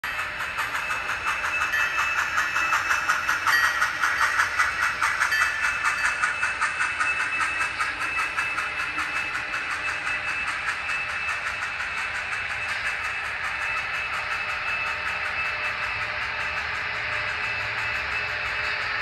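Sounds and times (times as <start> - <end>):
model steam locomotive chuffing: 0.0 - 19.0
steady steam hiss: 0.1 - 19.0.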